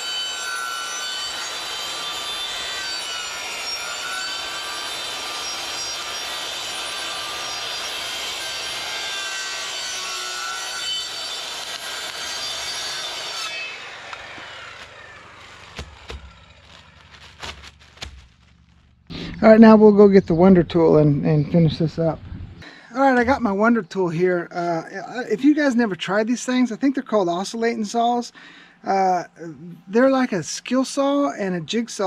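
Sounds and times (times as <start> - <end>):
power saw cutting wood: 0.0 - 18.2.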